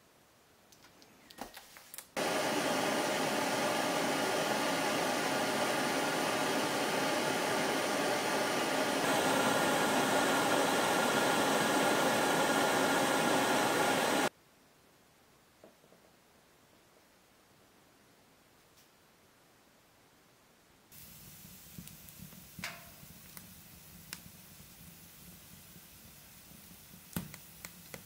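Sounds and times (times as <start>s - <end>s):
camping stove burner hissing: 2.2s - 14.3s, 20.9s - 28.0s.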